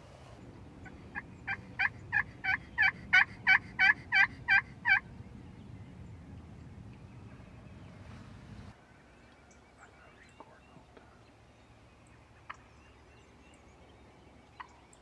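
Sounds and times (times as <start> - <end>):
turkey yelps: 1.1 - 5.0.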